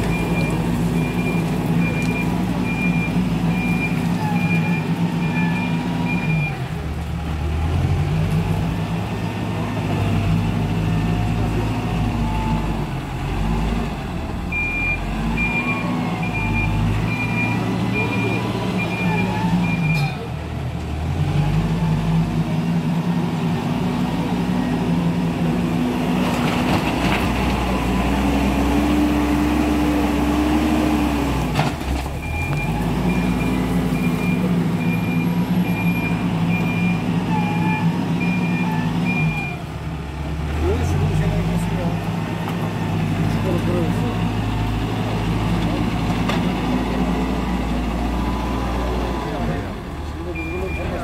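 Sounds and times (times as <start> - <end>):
diesel engine working: 0.0 - 51.0
reverse alarm beeping: 14.5 - 20.1, 32.2 - 39.6, 50.3 - 51.0.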